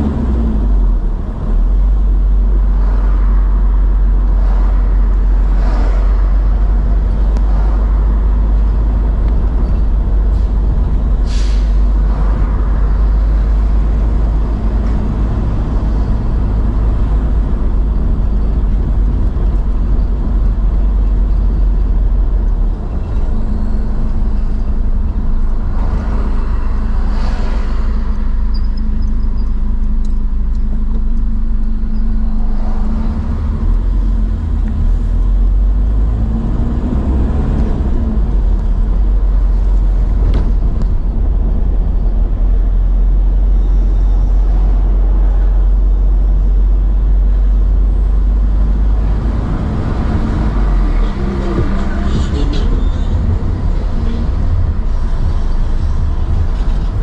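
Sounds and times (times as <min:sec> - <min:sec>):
car engine and road rumble: 0:00.0 - 0:57.0
vehicles passing: 0:00.0 - 0:57.0.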